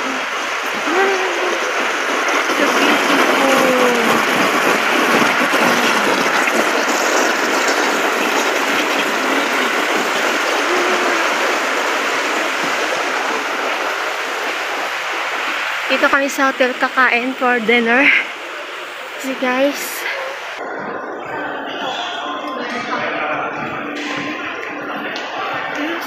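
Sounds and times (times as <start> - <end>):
fountain water splashing: 0.0 - 26.0.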